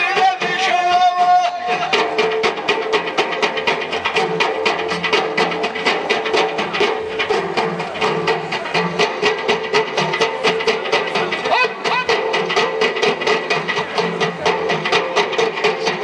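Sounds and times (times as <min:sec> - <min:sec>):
frame drums beaten in unison: 0:00.0 - 0:16.0.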